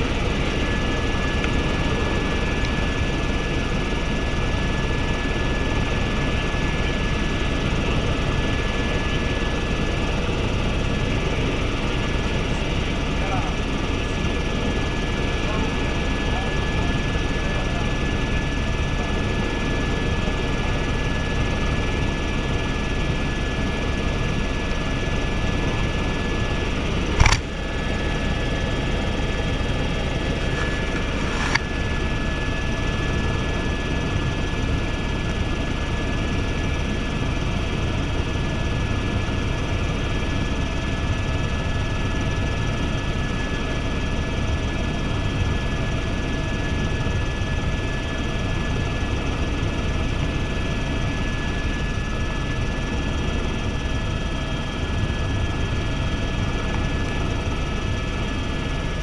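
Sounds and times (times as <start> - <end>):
high engine whine: 0.0 - 20.8, 21.4 - 33.9
helicopter rotor and engine rumble: 0.0 - 59.0
small click: 27.2 - 27.5.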